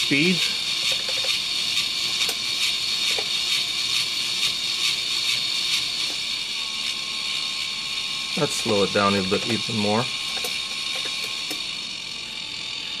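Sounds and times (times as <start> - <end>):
electric motor whirring: 0.0 - 13.0
regular clicking: 10.3 - 11.7.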